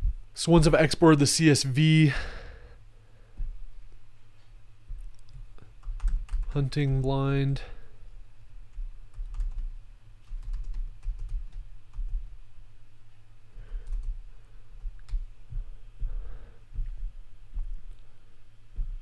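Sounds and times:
typing on computer keyboard: 5.8 - 6.6, 9.1 - 12.1, 13.8 - 14.1.

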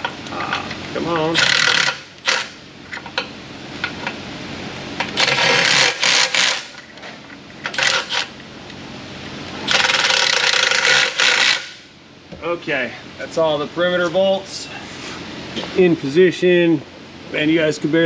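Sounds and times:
ratchet clicking rapidly: 1.3 - 2.5, 5.2 - 6.8, 7.7 - 8.3, 9.7 - 11.8.

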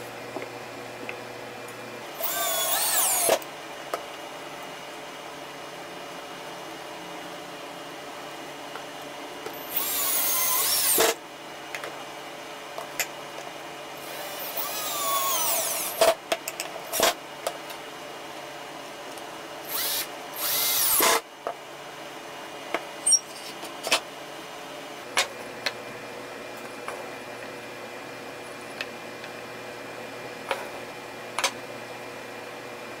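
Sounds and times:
cordless drill driving screws: 2.2 - 3.4, 9.6 - 11.2, 14.0 - 16.1, 19.7 - 21.2.

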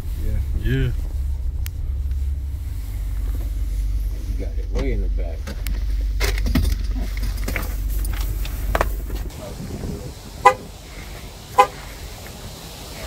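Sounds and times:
low vehicle rumble: 0.0 - 13.0
truck horn chirp: 10.4 - 10.7, 11.6 - 11.8.

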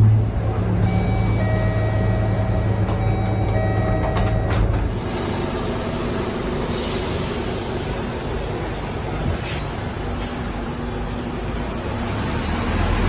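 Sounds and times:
bus diesel engine running: 0.0 - 13.0
street noise: 0.0 - 13.0
high electronic tones: 0.8 - 4.8.

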